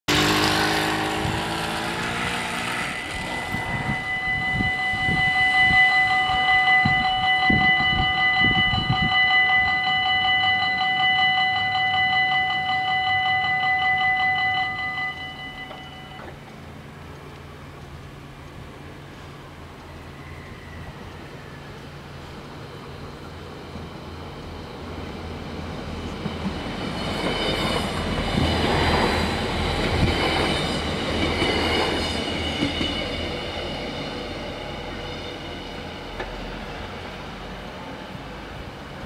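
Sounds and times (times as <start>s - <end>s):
moped passing: 0.1s - 5.6s
level crossing warning bells ringing: 2.2s - 16.5s.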